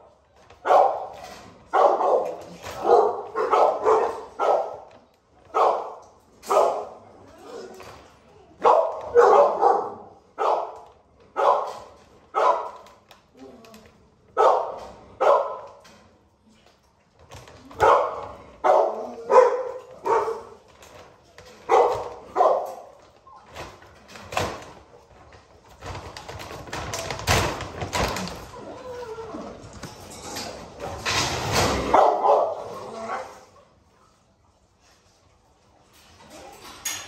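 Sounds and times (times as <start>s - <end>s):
dog barking: 0.6s - 1.1s, 1.7s - 4.9s, 5.5s - 6.9s, 8.6s - 10.8s, 11.4s - 12.8s, 14.4s - 15.7s, 17.8s - 20.6s, 21.7s - 22.9s, 31.8s - 32.8s.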